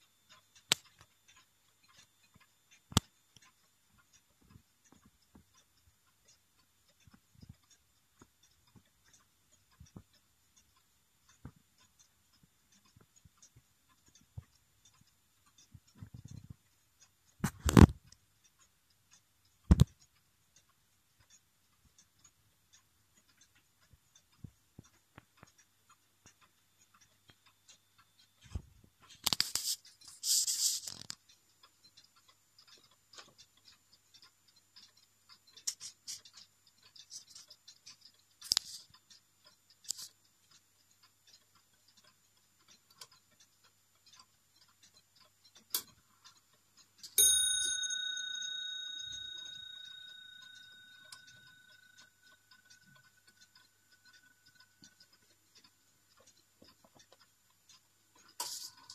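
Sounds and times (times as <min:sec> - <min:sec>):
clock ticking faintly: 0:00.0 - 0:58.9
clock bell ringing: 0:47.2 - 0:52.6.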